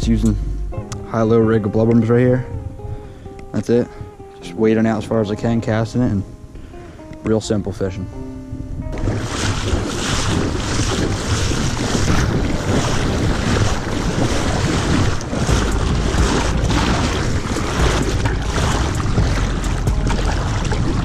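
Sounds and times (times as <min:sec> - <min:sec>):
wind buffeting microphone: 0:00.0 - 0:07.2, 0:08.4 - 0:21.0
knocks and splashes: 0:08.9 - 0:21.0
shallow water lapping: 0:08.9 - 0:21.0.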